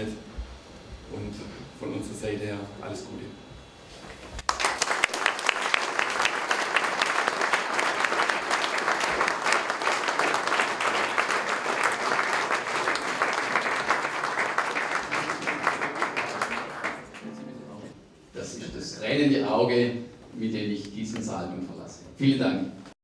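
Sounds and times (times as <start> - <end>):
audience applauding: 4.4 - 18.0.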